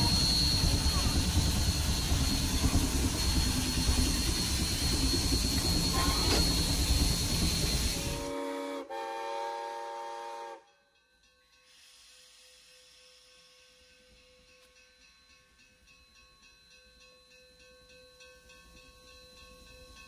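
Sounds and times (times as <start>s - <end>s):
steam hissing: 0.0s - 8.5s, 11.6s - 14.2s
chime steam whistle: 0.0s - 10.8s.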